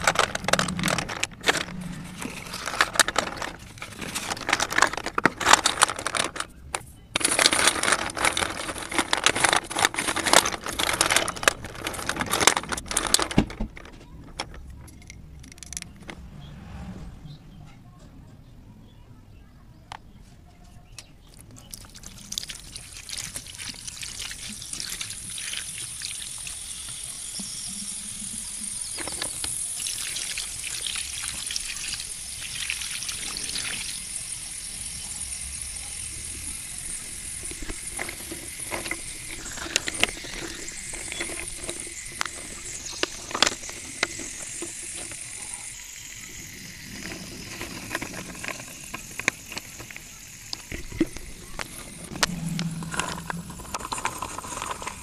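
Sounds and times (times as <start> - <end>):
water trickling over slate pencils: 0.0 - 1.6, 7.2 - 13.4, 21.2 - 52.2
wet pencils clicking together: 7.2 - 15.9.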